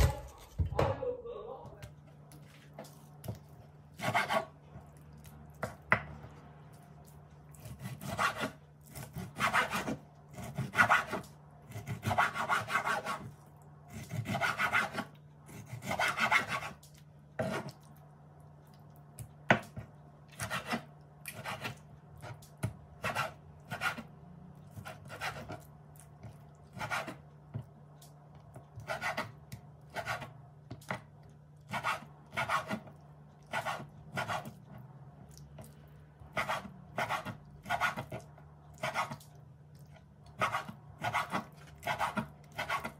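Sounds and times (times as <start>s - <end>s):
knife slicing meat on wooden board: 7.5s - 13.3s.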